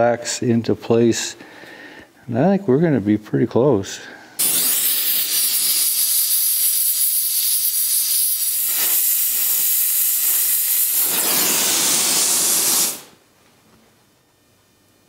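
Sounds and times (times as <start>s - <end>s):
torch flame hissing: 4.4s - 13.2s.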